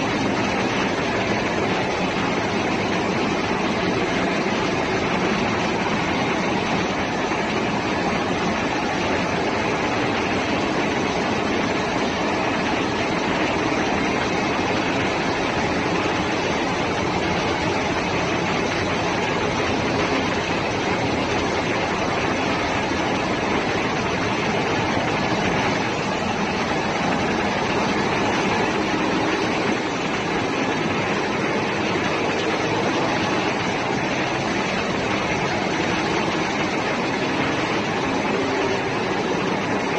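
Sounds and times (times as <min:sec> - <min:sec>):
ship engine room machinery din: 0:00.0 - 0:39.9.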